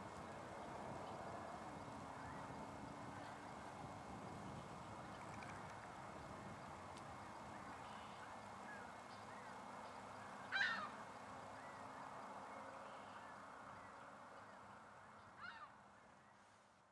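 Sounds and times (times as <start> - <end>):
faint outdoor hum: 0.0 - 16.9
faint bird chirps: 7.4 - 16.5.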